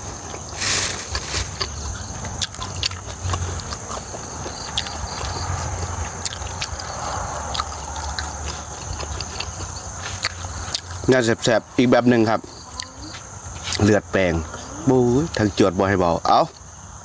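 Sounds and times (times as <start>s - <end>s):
person chewing wetly: 0.0s - 11.3s.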